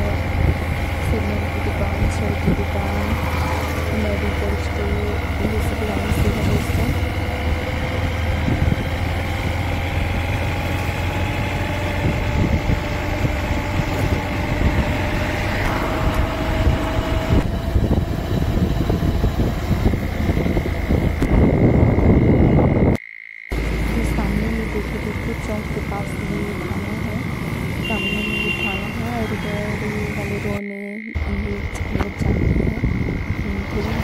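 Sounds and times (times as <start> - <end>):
vehicle engine and road noise: 0.0 - 34.0
thin high tone: 14.3 - 18.9.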